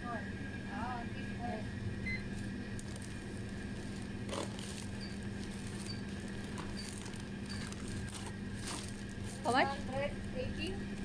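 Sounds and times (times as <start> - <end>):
steady hum: 0.0 - 11.0
barcode scanner beeping: 5.0 - 5.2, 5.8 - 7.7.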